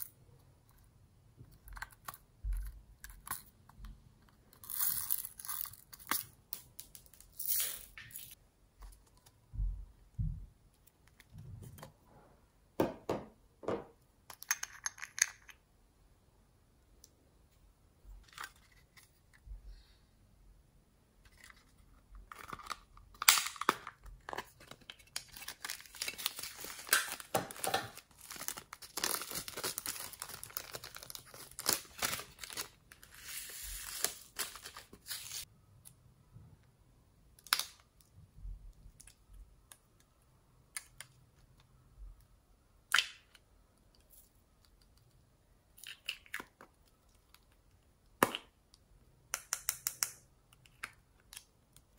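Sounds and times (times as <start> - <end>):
plastic bag crinkling and tearing: 24.4 - 35.4.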